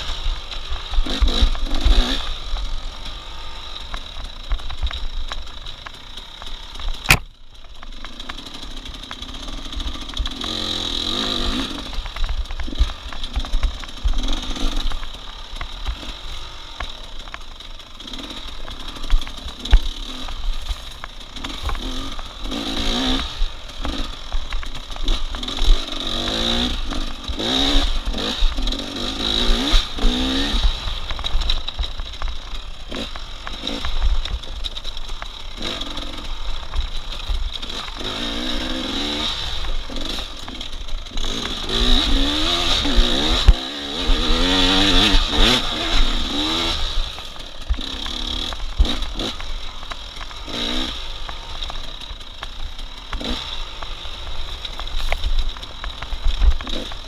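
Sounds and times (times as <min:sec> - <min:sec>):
racing engine revving through gears: 0:08.8 - 0:12.1, 0:25.0 - 0:31.2, 0:37.6 - 0:47.2, 0:50.5 - 0:51.1, 0:56.6 - 0:56.9.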